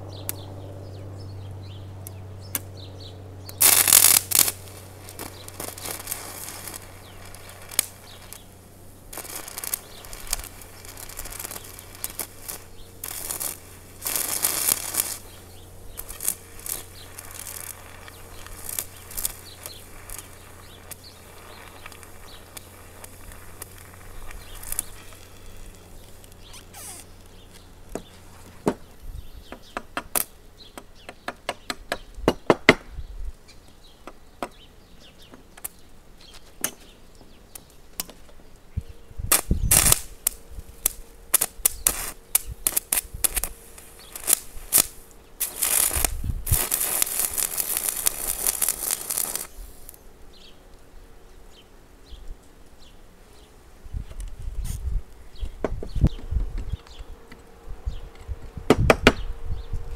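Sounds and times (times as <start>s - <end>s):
welding arc crackling: 2.0s - 31.4s, 37.4s - 51.0s.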